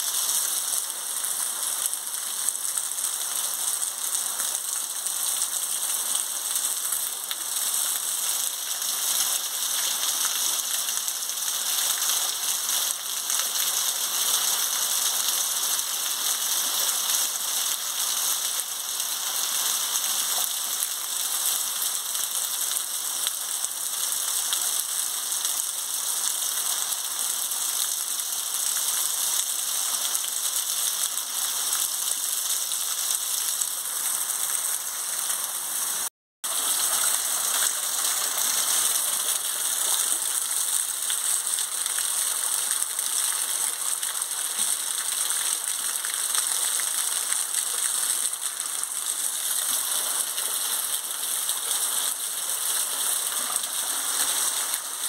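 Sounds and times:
rainwater pouring off roof: 0.0s - 55.0s
heavy rain falling: 28.2s - 55.0s.

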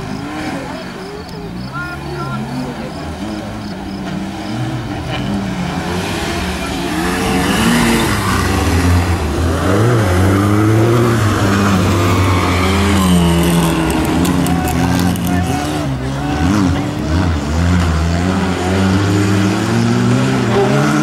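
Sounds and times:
car engine revving hard: 0.0s - 21.0s.

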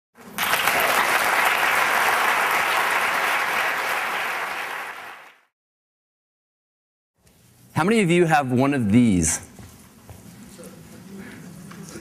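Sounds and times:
audience applauding: 0.2s - 5.5s.

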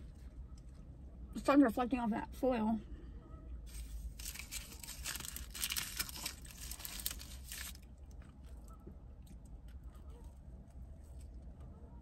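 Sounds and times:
paper crinkling: 3.7s - 8.6s
chewing crunchy sandwich: 4.1s - 11.7s.

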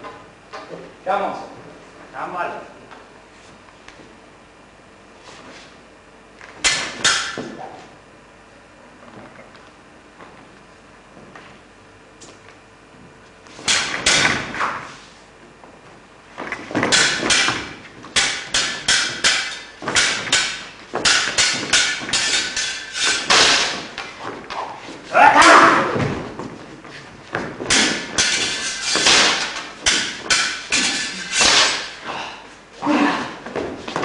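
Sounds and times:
swords clashing: 6.6s - 7.6s, 13.6s - 14.6s, 16.7s - 26.0s, 27.6s - 32.0s.

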